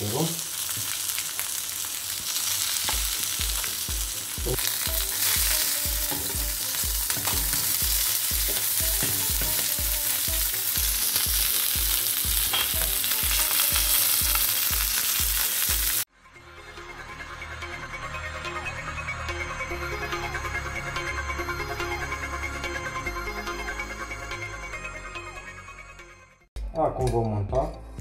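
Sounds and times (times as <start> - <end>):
fish sizzling in oil: 0.0 - 16.1.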